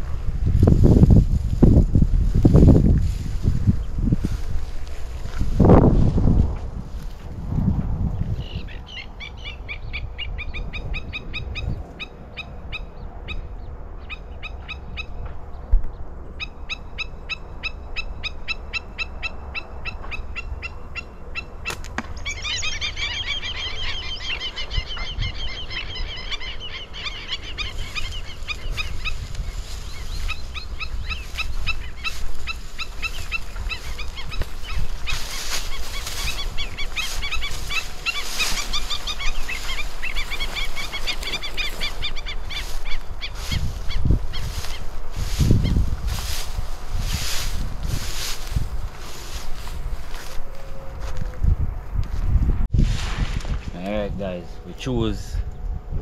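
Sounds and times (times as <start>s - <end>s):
rustling of dry brush: 0.0s - 8.6s, 27.3s - 54.1s
wind rumble on microphone: 0.0s - 56.0s
birds calling sharp high notes: 16.4s - 44.9s.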